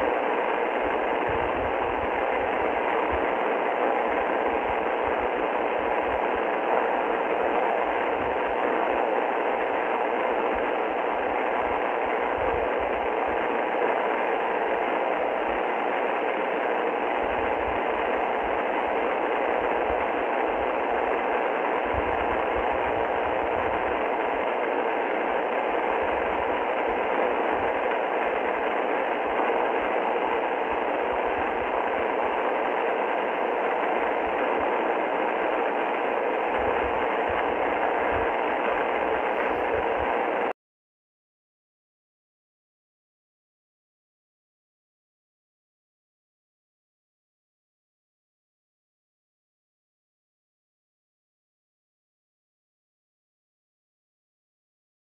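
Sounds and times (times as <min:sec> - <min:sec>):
radio static hiss: 0:00.0 - 0:40.6.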